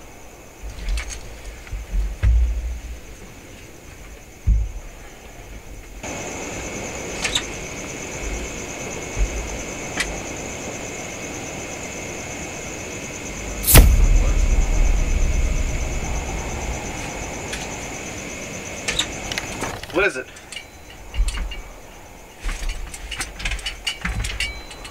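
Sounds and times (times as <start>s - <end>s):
loud bang: 13.6s - 18.2s
low rumble: 13.6s - 18.6s
high-pitched whine: 13.6s - 19.4s.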